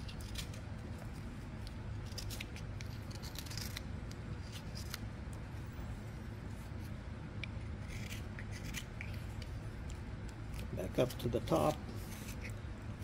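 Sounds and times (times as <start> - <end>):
low background hum: 0.0 - 13.0
knife scraping wooden stick: 6.5 - 9.6, 11.5 - 12.7.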